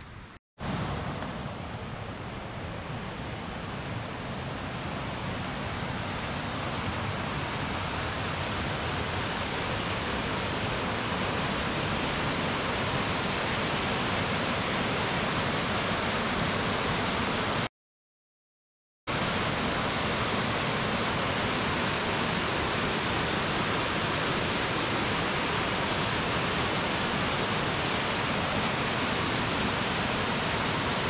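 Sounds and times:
rushing water roar: 0.0 - 17.7, 19.1 - 31.0.

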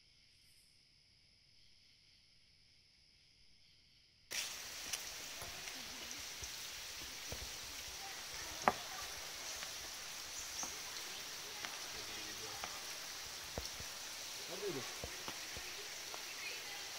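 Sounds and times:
high insect drone: 0.0 - 16.9
hiss of water: 4.3 - 16.9.

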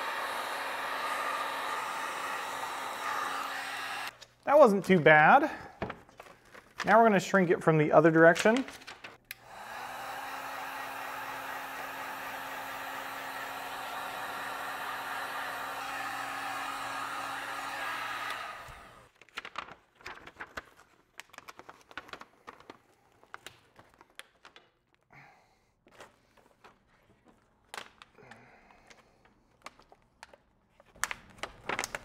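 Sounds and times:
heat gun blowing: 0.0 - 4.2, 9.3 - 19.1
plastic wrap crinkling: 19.1 - 25.0, 29.2 - 32.0.

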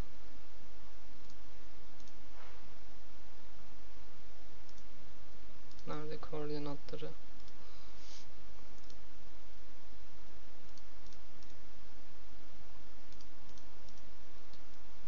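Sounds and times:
low hum: 0.0 - 15.0
microphone hiss: 0.0 - 15.0
faint mouse clicks: 2.0 - 2.2, 4.7 - 4.9, 5.7 - 5.9, 6.9 - 7.6, 8.8 - 9.0, 10.7 - 11.6, 13.1 - 14.8.

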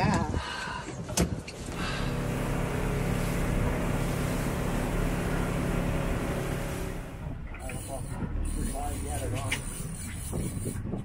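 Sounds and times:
wind: 0.0 - 11.0
wake water rushing: 1.6 - 10.0
boat engine running: 1.6 - 11.0.

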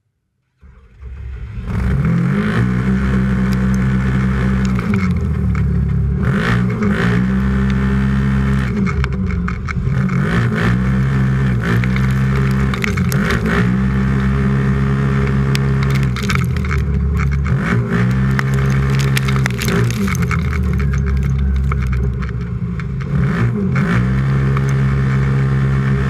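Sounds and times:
engine at full throttle: 0.6 - 26.0
dirt clattering against cab: 11.5 - 14.6.

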